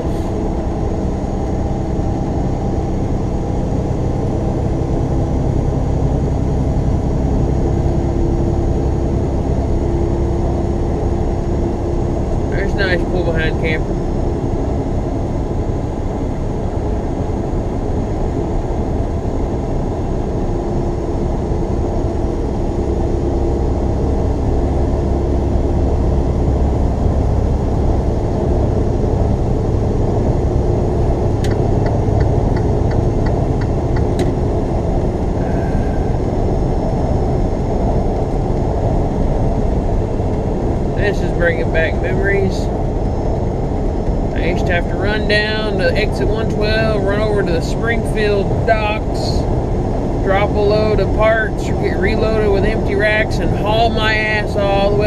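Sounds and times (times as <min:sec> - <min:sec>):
truck engine and road noise: 0:00.0 - 0:55.0.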